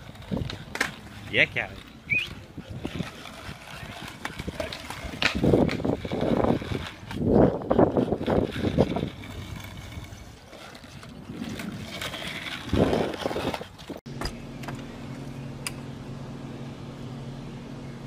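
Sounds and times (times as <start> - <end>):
skateboard wheels rolling on asphalt: 0.0 - 16.0
steady low hum: 14.1 - 18.0.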